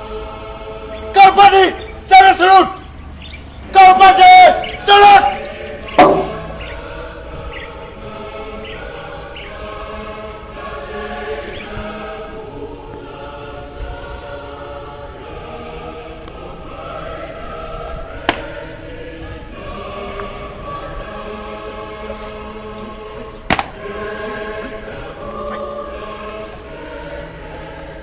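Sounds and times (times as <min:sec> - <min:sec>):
choir singing long notes: 0:00.0 - 0:28.0
sharp knock: 0:06.0 - 0:06.6.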